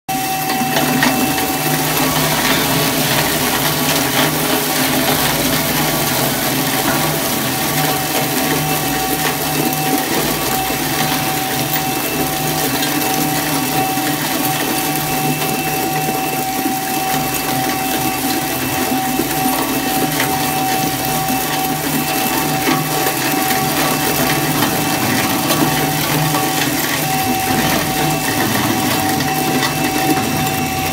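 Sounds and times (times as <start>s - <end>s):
metal shredder grinding steel: 0.1s - 30.9s.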